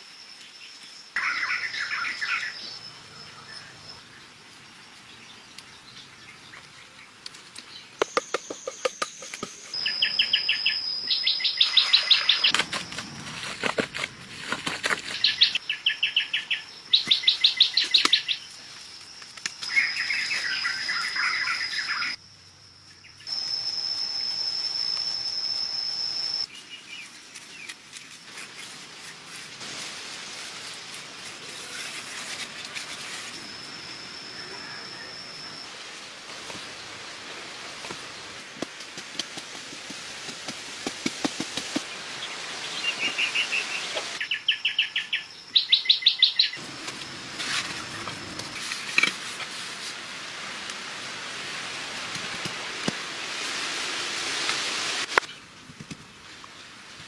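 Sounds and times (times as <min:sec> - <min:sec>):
high-pitched insect drone: 0:15.5 - 0:26.5, 0:30.4 - 0:36.8.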